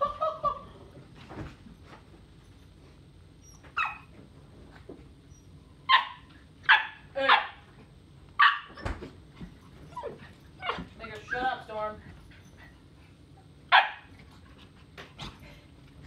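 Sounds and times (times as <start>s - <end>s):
small dogs barking: 5.9s - 7.6s, 13.7s - 14.1s.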